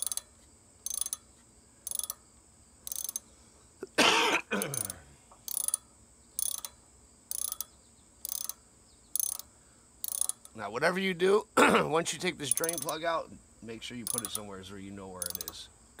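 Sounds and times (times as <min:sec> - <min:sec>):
socket ratchet clicking: 0:00.0 - 0:02.2, 0:02.8 - 0:03.3, 0:04.6 - 0:10.6, 0:12.4 - 0:13.0, 0:14.0 - 0:14.5, 0:15.2 - 0:15.6.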